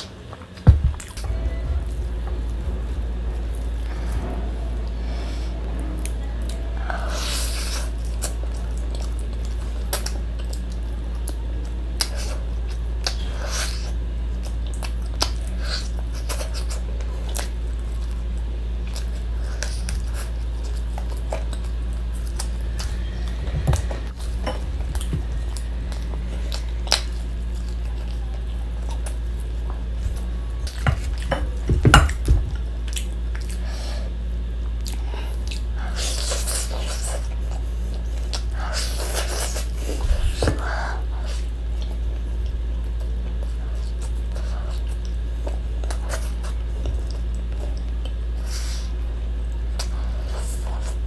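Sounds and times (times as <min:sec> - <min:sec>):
steady low hum: 0:00.0 - 0:51.0
chewing and mouth smacks: 0:07.8 - 0:31.3, 0:32.8 - 0:33.6, 0:34.6 - 0:40.5, 0:41.2 - 0:51.0.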